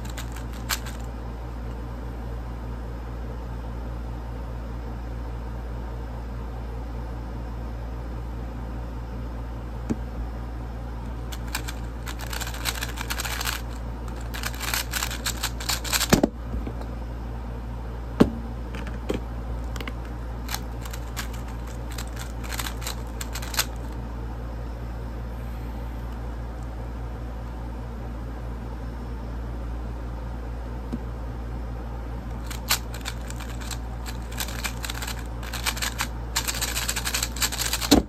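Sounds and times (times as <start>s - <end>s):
puzzle cube clicking: 0.0s - 1.1s, 11.3s - 16.1s, 20.5s - 24.0s, 32.4s - 38.0s.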